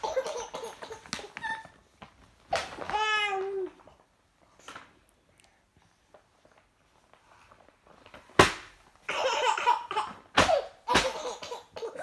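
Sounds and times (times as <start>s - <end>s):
baby laughing: 0.0s - 1.8s, 9.1s - 12.0s.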